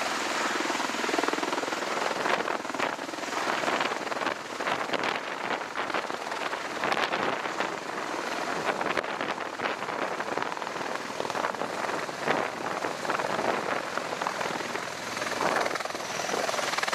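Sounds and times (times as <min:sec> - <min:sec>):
aircraft rotors rushing with crackle: 0:00.0 - 0:16.9.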